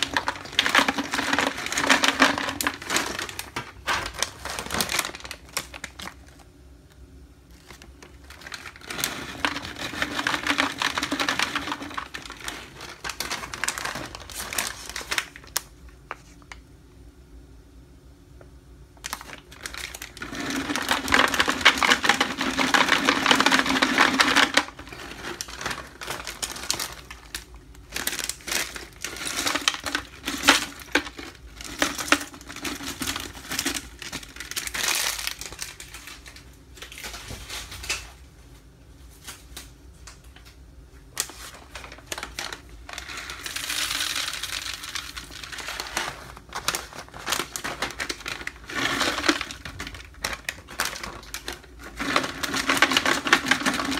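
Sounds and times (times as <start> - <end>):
nuts pouring into plastic jar: 0.0 - 6.2, 7.7 - 15.4, 19.1 - 35.8, 41.8 - 53.9
packet crinkling: 0.0 - 16.6, 19.0 - 38.1, 39.2 - 53.9.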